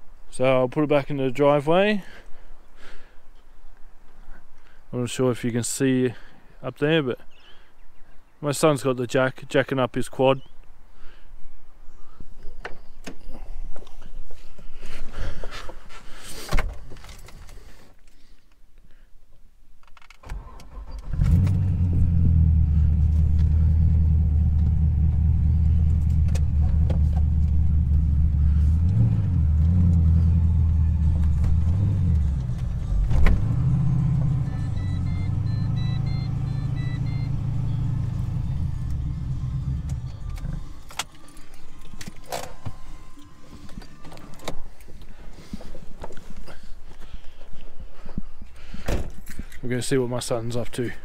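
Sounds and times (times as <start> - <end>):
car engine running: 21.2 - 41.9
short electronic beeps: 34.4 - 38.9.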